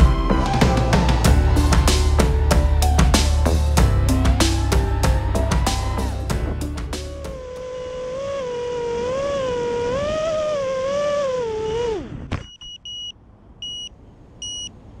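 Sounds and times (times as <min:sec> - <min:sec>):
drone motors whining: 0:01.0 - 0:12.4
short high electronic beeps: 0:12.4 - 0:14.7.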